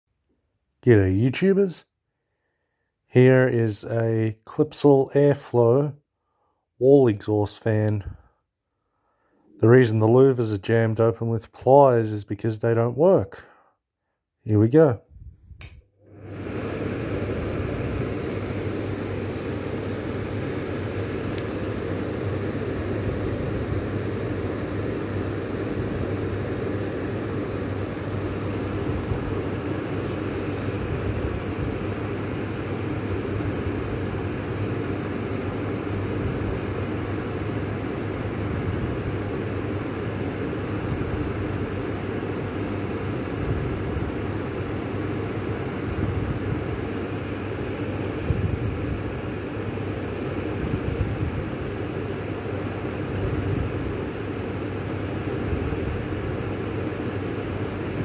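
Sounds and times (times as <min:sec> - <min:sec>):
exhaust fan running: 0:06.9 - 0:08.3, 0:14.7 - 0:58.0.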